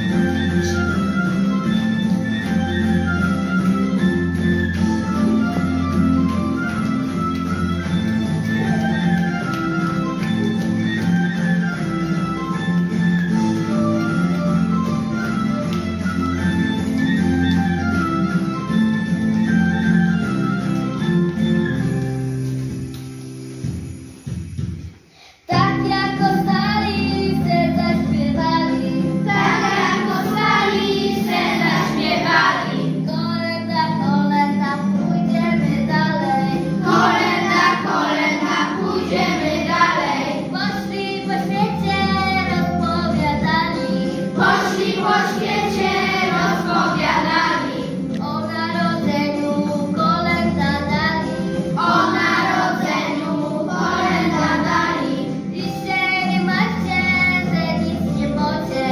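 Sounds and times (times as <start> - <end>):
instrumental accompaniment: 0.0 - 58.9
children singing a carol: 25.5 - 33.6, 36.1 - 58.9.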